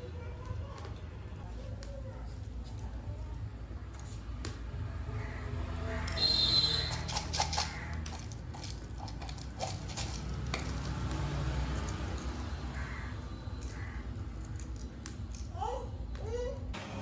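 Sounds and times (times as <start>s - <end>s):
spices rattling in metal tin: 6.1s - 12.5s, 13.6s - 15.6s.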